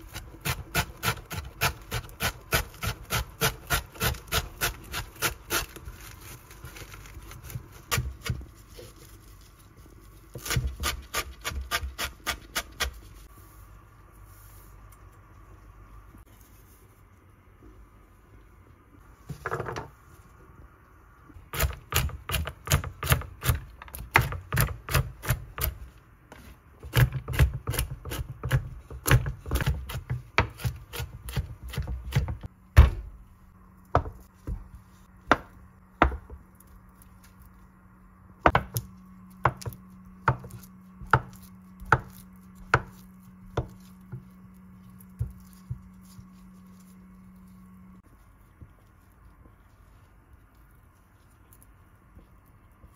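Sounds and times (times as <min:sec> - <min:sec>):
knife chopping on wooden board: 0:26.8 - 0:33.1, 0:35.3 - 0:36.4, 0:38.4 - 0:44.3.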